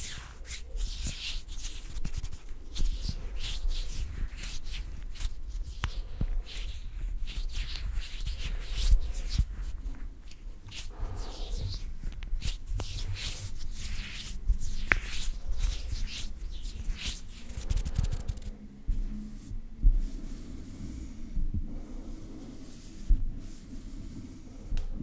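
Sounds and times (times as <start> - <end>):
fingers fluttering near microphone: 0.0 - 18.6
hands rubbing and swishing: 0.0 - 25.0
soft low thumps: 18.1 - 20.3, 21.2 - 21.8.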